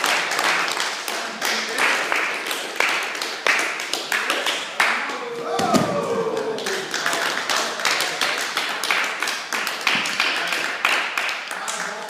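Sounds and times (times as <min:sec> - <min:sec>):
sharp slaps and claps: 0:00.0 - 0:12.0
group shouting and cheering: 0:04.8 - 0:07.3.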